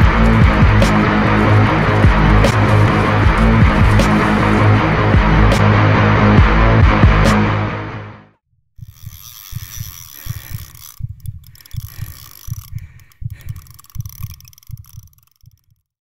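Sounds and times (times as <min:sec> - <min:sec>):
heartbeat low thumps: 0:00.0 - 0:05.6, 0:08.8 - 0:15.2.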